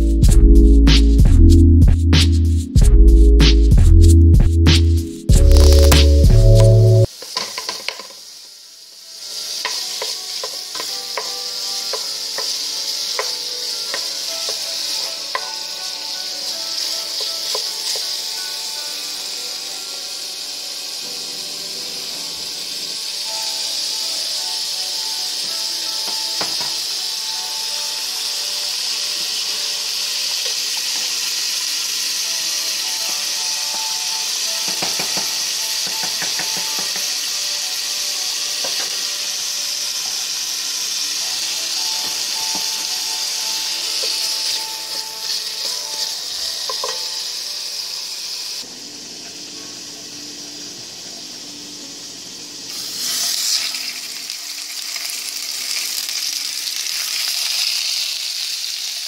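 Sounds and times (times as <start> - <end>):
food sizzling in a pot: 5.3 - 59.0
faint music: 8.8 - 56.6.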